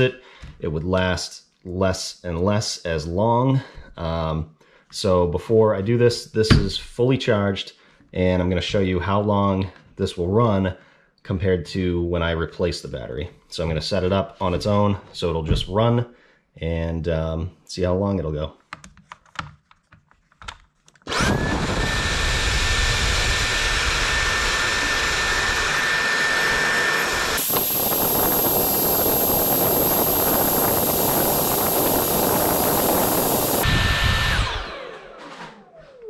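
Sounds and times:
vacuum cleaner motor whine: 0:21.1 - 0:36.0.

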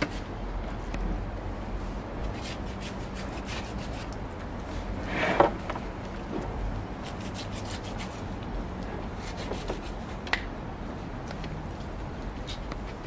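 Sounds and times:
rubbing and scraping on a board: 0:02.3 - 0:05.7, 0:07.0 - 0:08.3, 0:09.1 - 0:10.0.

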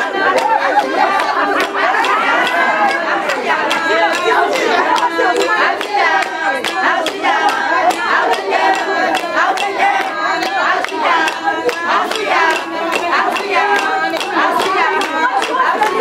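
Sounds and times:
group of voices singing: 0:00.0 - 0:16.0
hand clapping steady beat: 0:00.0 - 0:16.0.

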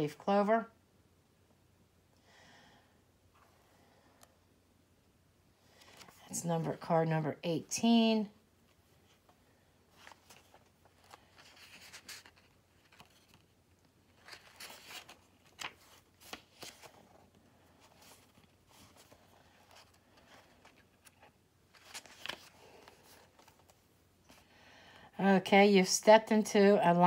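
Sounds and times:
paper pages rustling: 0:05.8 - 0:06.3, 0:09.9 - 0:24.4.

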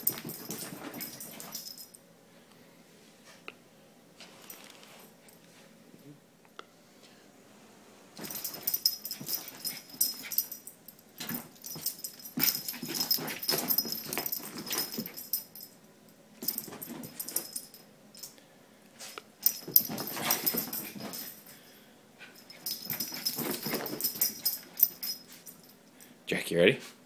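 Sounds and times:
collar tag jingling: 0:00.0 - 0:02.0, 0:08.2 - 0:15.8, 0:16.4 - 0:18.3, 0:19.4 - 0:21.7, 0:22.3 - 0:26.0.

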